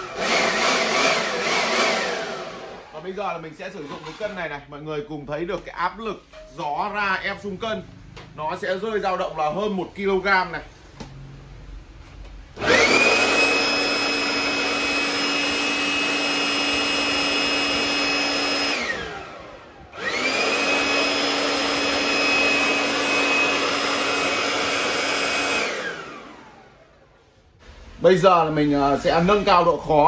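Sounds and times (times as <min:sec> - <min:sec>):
electric blower whine: 0:00.0 - 0:03.4, 0:12.6 - 0:27.9.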